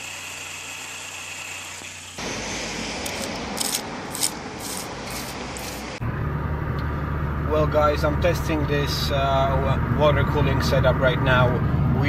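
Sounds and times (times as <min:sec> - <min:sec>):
water spray hissing: 0:00.0 - 0:06.0.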